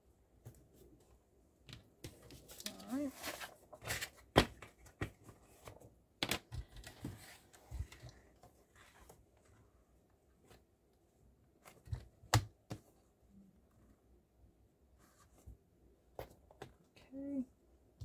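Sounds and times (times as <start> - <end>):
paper rustling and sliding: 2.3 - 4.2.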